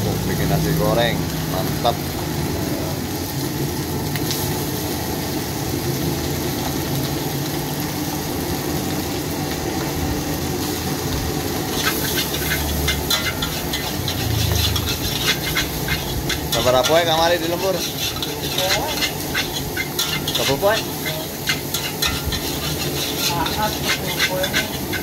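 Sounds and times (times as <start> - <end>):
rice sizzling in a wok: 0.0 - 25.0
metal spatula scraping wok: 11.6 - 25.0.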